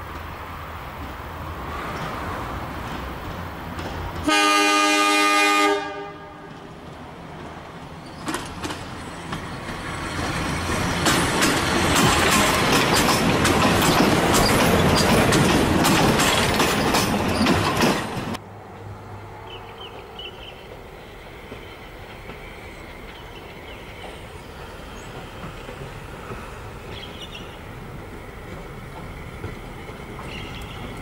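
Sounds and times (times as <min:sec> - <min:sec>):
railcar engine: 0:00.0 - 0:31.0
wheels clicking over rail joints: 0:00.1 - 0:04.3, 0:06.4 - 0:18.4, 0:20.6 - 0:31.0
train horn blast: 0:04.2 - 0:06.7.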